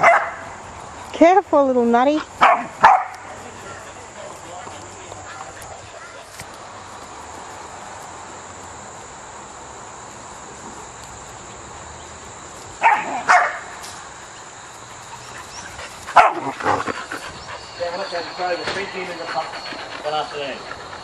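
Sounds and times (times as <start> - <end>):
dog barking: 0.0 - 0.5, 2.4 - 3.9, 12.8 - 13.7, 16.1 - 16.5.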